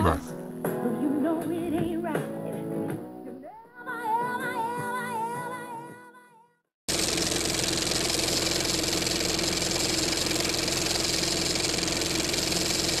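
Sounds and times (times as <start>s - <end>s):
mechanical running hum: 6.9s - 13.0s.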